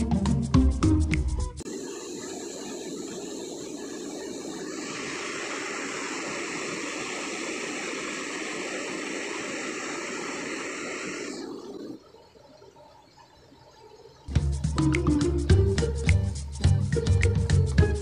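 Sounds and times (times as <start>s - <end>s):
water rushing and churning: 1.6s - 14.3s.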